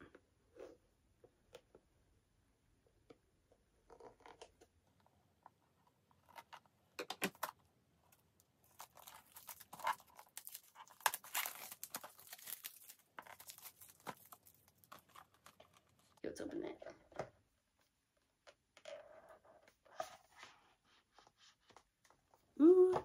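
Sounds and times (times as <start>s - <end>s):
plastic crinkling and tearing: 8.6s - 16.2s.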